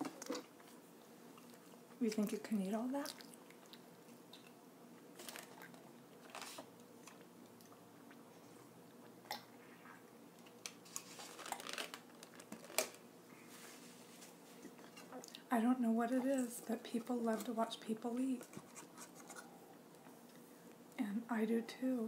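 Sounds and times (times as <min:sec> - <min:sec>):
chewing mouth sounds: 0:03.0 - 0:04.6.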